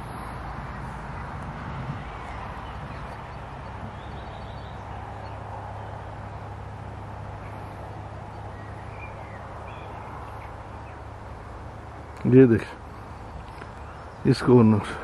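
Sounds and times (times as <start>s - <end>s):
outdoor background noise: 0.0s - 15.0s
faint bird chirps: 2.2s - 6.2s.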